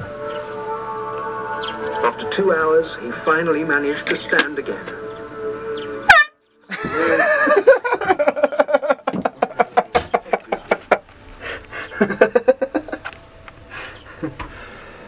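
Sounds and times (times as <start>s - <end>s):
man honking loudly: 6.0s - 6.4s
man laughing: 6.7s - 13.2s, 13.8s - 14.5s.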